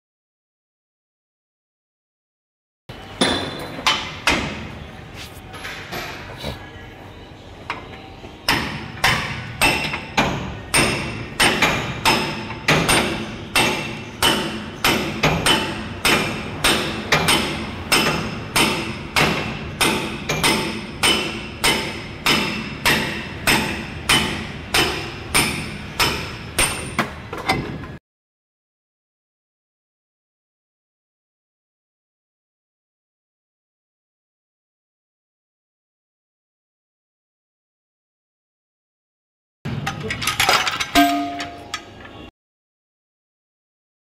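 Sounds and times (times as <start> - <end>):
hammer striking metal: 3.2 - 4.6, 8.4 - 27.1, 39.7 - 42.0.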